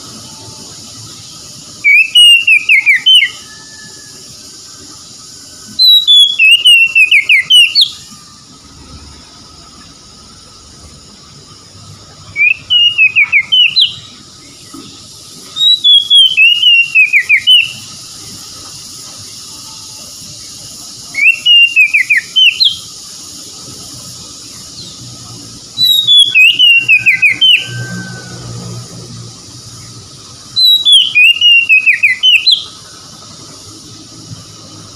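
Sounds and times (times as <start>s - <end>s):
magpie-robin singing: 1.7s - 3.5s, 5.7s - 8.1s, 12.3s - 14.8s, 15.4s - 18.1s, 21.0s - 23.0s, 25.6s - 27.8s, 30.4s - 32.8s.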